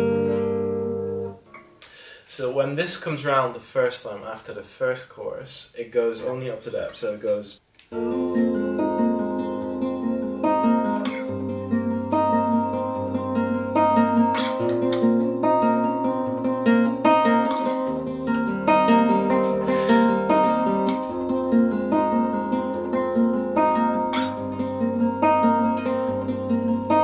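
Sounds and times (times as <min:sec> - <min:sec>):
fingerpicked classical guitar: 0:00.0 - 0:01.8, 0:07.9 - 0:27.0.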